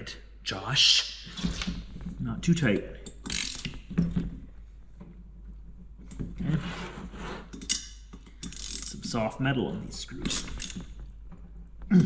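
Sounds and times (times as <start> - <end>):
wrench scraping screws: 3.2 - 3.8, 7.4 - 9.0, 10.3 - 10.9.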